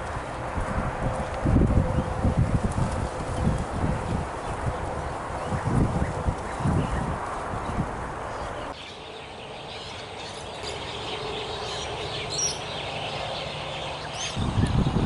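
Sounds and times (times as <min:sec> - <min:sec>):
small birds chirping: 0:04.0 - 0:15.0.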